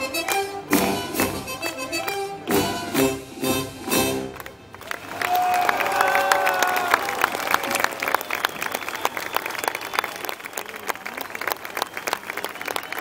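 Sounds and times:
audience applause: 4.3s - 13.0s.

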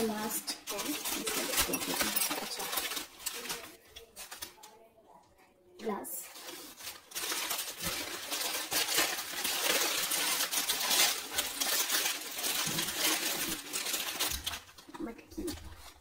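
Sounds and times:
clay pieces clinking and rattling: 0.6s - 4.4s, 7.1s - 14.9s.

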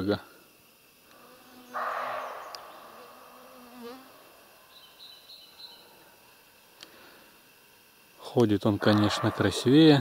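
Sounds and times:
flying insect buzzing: 0.0s - 8.0s.

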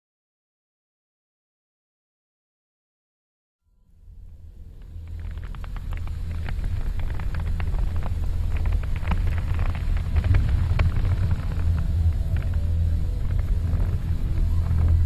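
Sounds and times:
deep low rumble: 3.9s - 15.0s
crackling clicks: 4.2s - 15.0s.

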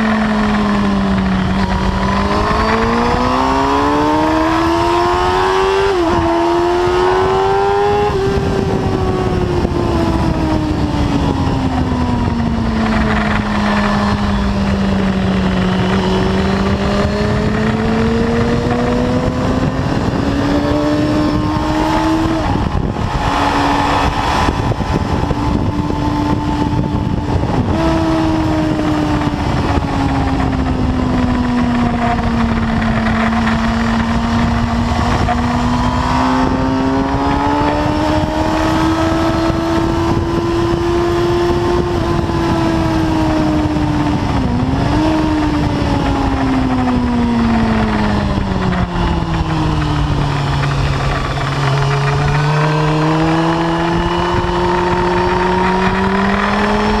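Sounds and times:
motorcycle engine revving: 0.0s - 57.0s
wind rushing: 0.0s - 57.0s.

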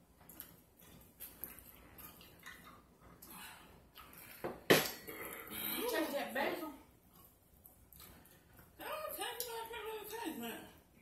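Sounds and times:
chewing and drinking: 0.1s - 5.9s, 6.9s - 9.7s.

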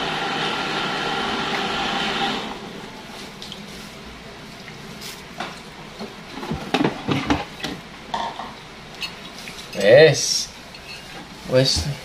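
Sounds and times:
hands squeezing wet coconut: 0.1s - 6.2s.

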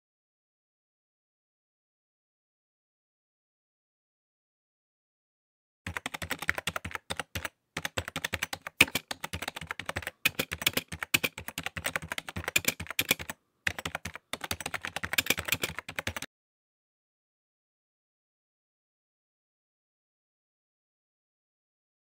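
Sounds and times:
keyboard typing: 5.9s - 16.3s.

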